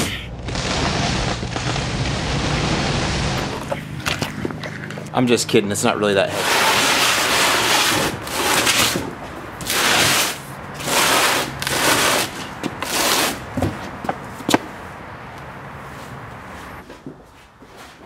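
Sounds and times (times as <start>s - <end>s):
cardboard box scraping on concrete: 0.0s - 4.9s, 6.2s - 14.0s.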